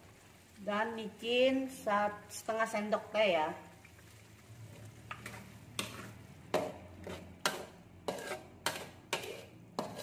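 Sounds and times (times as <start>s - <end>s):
utensil scraping a metal wok: 4.7s - 10.0s.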